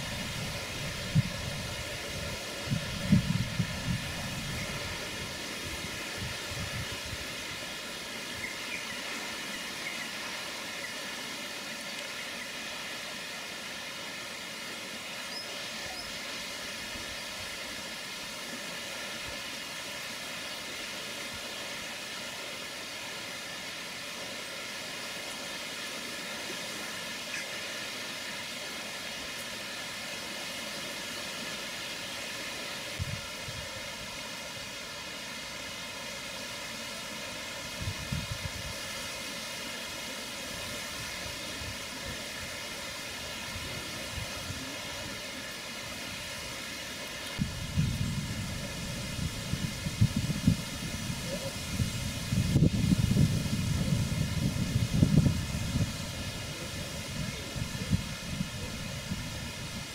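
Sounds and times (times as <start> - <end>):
outdoor background hiss: 0.0 - 59.9.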